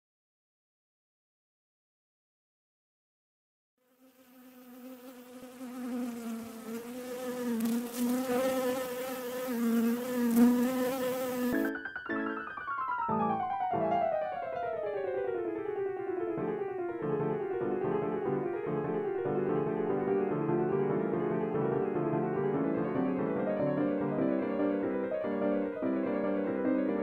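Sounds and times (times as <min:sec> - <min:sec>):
piano runs: 0:11.6 - 0:27.0.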